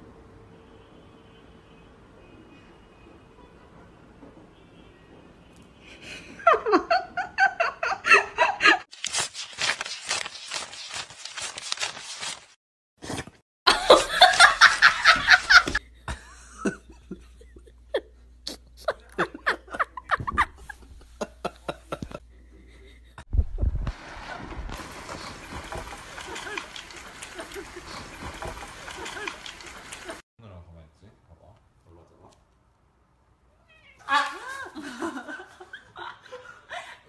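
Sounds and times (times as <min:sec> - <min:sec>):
people laughing: 0:13.7 - 0:18.1, 0:18.8 - 0:23.2, 0:26.0 - 0:30.2, 0:34.1 - 0:37.0.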